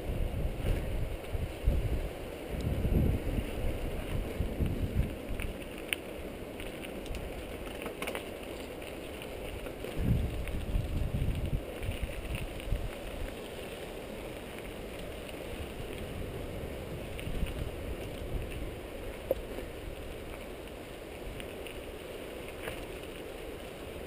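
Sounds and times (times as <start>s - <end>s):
wind buffeting microphone: 0.0s - 22.1s
bike tyres on dirt and stones: 0.0s - 24.0s
bike clicks and knocks: 4.0s - 11.0s.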